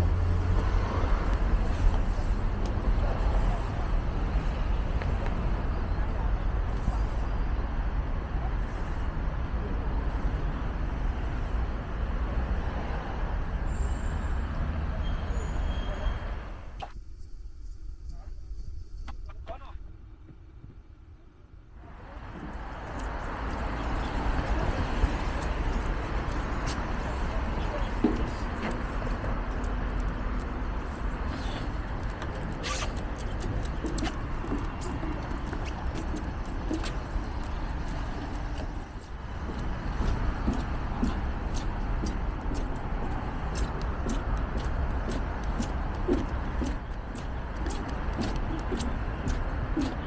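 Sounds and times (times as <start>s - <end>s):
street traffic noise: 0.0s - 50.0s
faint short calls: 32.6s - 33.0s.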